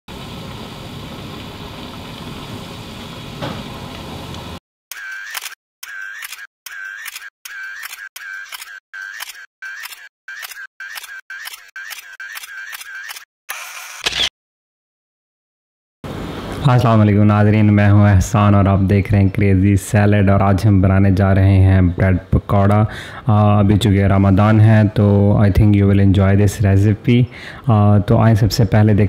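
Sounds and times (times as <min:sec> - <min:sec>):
bread frying in hot oil: 0:00.1 - 0:04.6
short clipped sound effects: 0:04.9 - 0:14.3.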